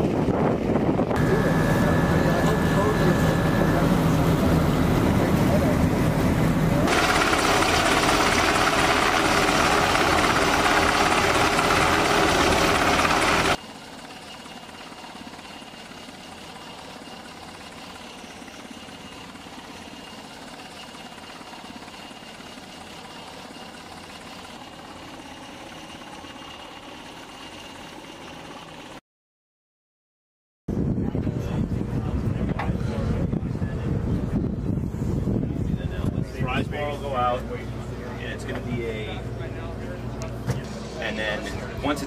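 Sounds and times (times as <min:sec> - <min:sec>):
helicopter rotor noise: 0:00.0 - 0:29.0, 0:30.7 - 0:42.0
thin high tone: 0:01.2 - 0:05.1.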